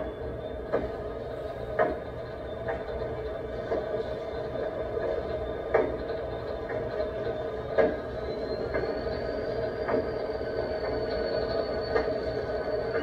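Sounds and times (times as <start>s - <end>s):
diesel locomotive engine running: 0.0s - 13.0s
thin high whine: 7.1s - 13.0s.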